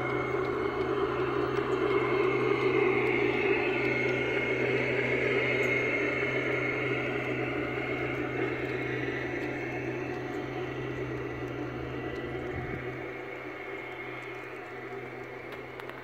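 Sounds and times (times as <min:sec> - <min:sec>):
model train motor hum: 0:00.0 - 0:16.0
model train wheels rumbling on rail: 0:00.0 - 0:16.0.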